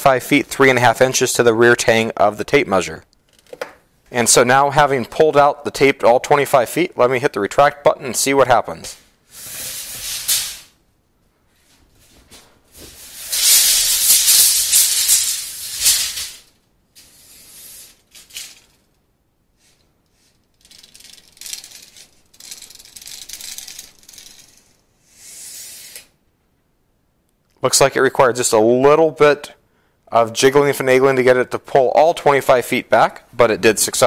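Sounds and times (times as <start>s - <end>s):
tape measure retracting: 9.3s - 10.7s, 12.8s - 18.9s, 19.6s - 26.1s.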